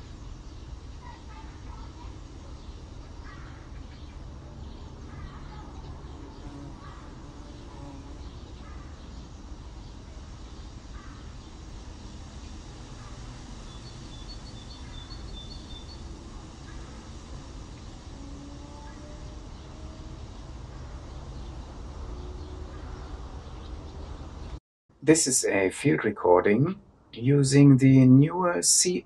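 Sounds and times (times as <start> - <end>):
bird calls: 0.0 - 11.6, 12.3 - 24.6
high bird chirps: 13.7 - 16.1.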